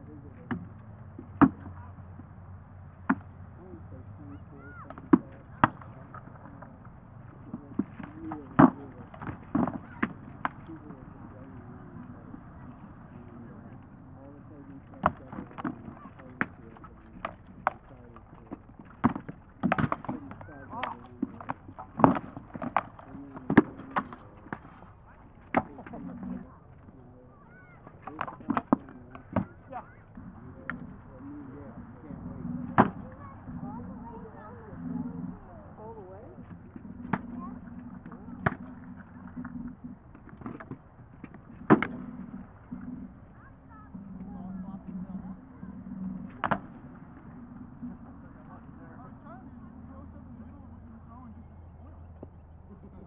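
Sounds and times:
faint voices: 0.0 - 53.0.

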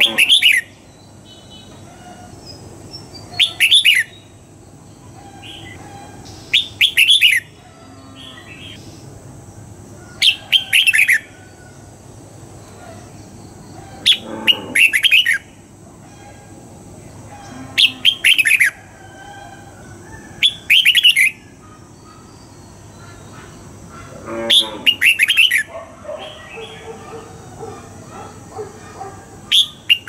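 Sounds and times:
bird singing whistled notes: 3.0 - 4.4, 6.4 - 7.5, 20.4 - 21.4.

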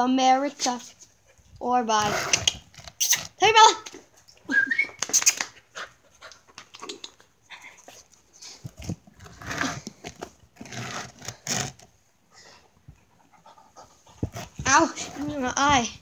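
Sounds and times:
dog panting: 5.6 - 8.6, 12.3 - 15.4.

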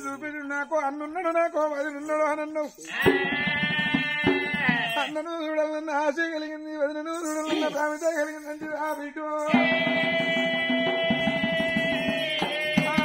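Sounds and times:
drum strokes: 3.0 - 5.1, 9.5 - 13.0
man singing folk melody: 4.9 - 13.0.

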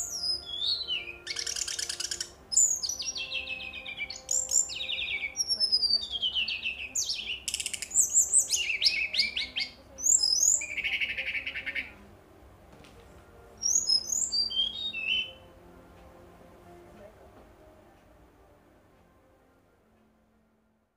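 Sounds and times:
bird singing whistles and trills: 0.0 - 12.0, 13.6 - 15.5.

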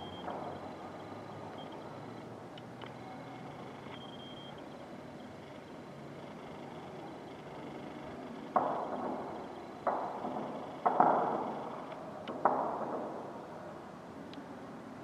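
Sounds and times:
distant gunfire with echo: 8.5 - 13.7.

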